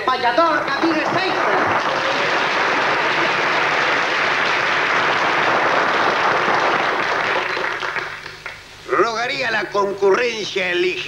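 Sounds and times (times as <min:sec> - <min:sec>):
audience applauding: 0:00.7 - 0:08.7.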